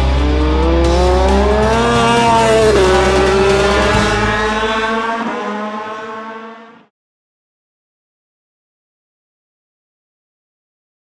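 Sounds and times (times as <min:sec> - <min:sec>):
motorcycle engine at high revs: 0:00.0 - 0:06.8.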